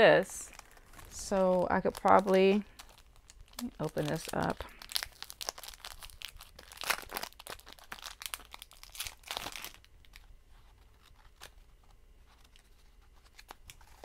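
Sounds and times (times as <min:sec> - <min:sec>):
packaging tearing and crinkling: 0:00.4 - 0:14.0
faint rustles and clicks: 0:09.7 - 0:14.0.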